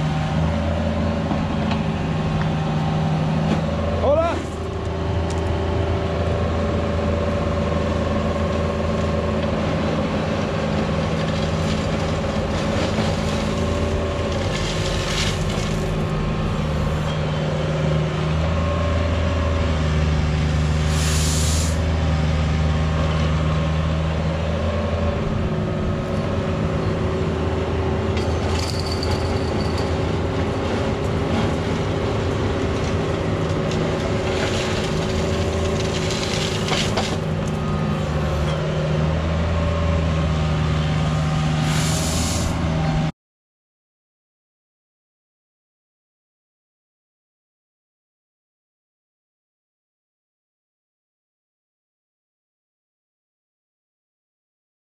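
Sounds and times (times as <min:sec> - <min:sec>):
excavator diesel engine running: 0:00.0 - 0:43.1
short hisses: 0:20.9 - 0:21.8, 0:41.6 - 0:42.6.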